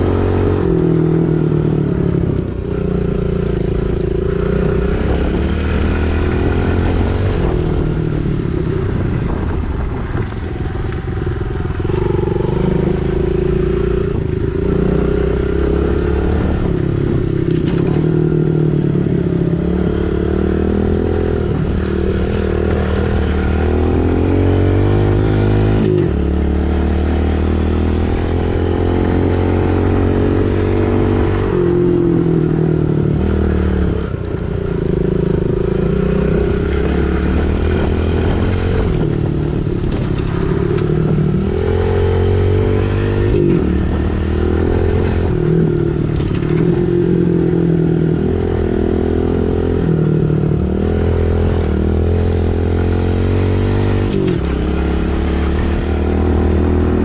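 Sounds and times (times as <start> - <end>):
pit bike engine revving: 34.8 - 57.0.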